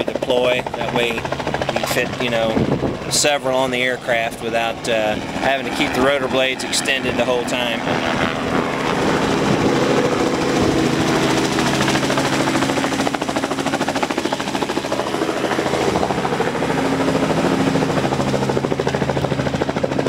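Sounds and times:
helicopter rotor chop: 0:00.0 - 0:20.0.

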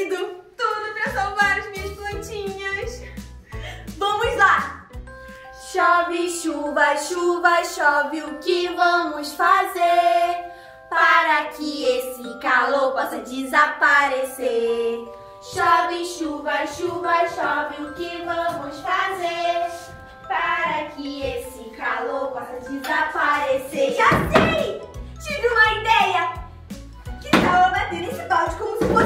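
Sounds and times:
upbeat instrumental backing: 0:00.6 - 0:06.4, 0:14.2 - 0:29.0
women singing together: 0:05.6 - 0:24.7.

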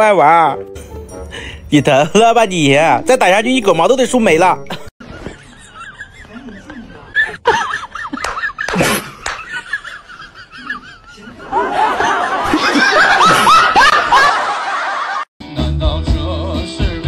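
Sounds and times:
person laughing: 0:04.7 - 0:14.3.

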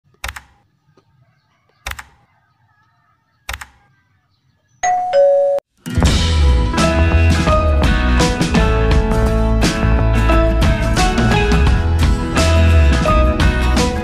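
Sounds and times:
sharp clicks: 0:00.1 - 0:00.6, 0:01.8 - 0:02.3, 0:03.4 - 0:03.8
guitar music: 0:05.8 - 0:14.0.

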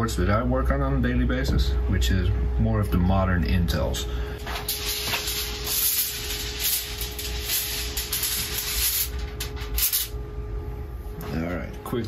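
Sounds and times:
faint steady hum: 0:00.0 - 0:12.0
rubbing and rustling of wire basket: 0:04.4 - 0:10.1.

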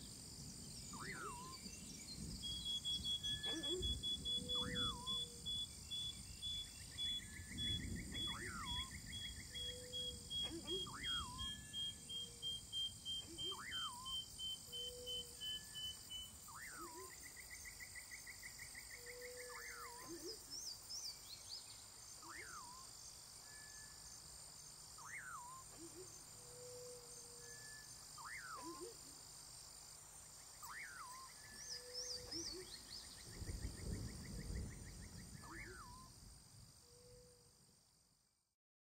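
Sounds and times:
bird calling: 0:00.9 - 0:01.7, 0:02.5 - 0:17.2, 0:25.0 - 0:29.1, 0:30.6 - 0:33.2.

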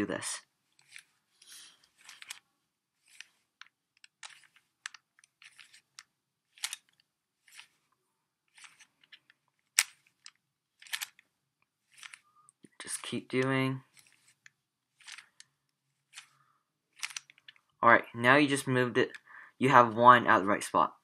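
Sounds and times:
puzzle cube turning clicks: 0:00.8 - 0:02.4, 0:03.0 - 0:07.8, 0:08.5 - 0:11.3, 0:11.9 - 0:16.4, 0:17.0 - 0:17.7.

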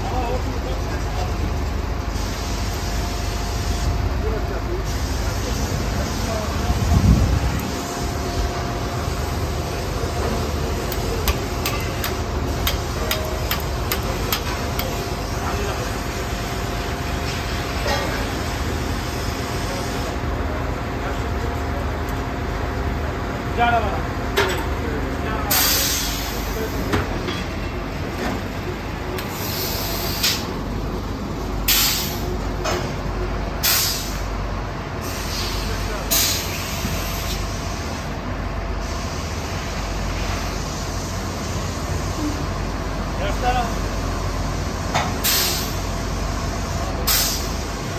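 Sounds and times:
drilling rig machinery drone: 0:00.0 - 0:47.9.

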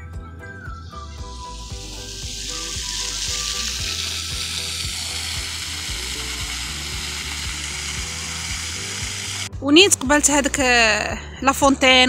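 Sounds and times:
fountain water jets spraying: 0:01.3 - 0:09.5.

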